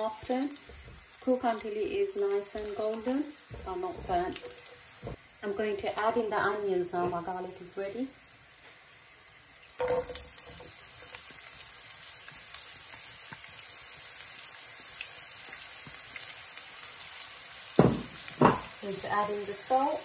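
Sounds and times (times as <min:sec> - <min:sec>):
onions sizzling in frying pan: 0:00.0 - 0:20.0
knock: 0:17.8 - 0:18.7.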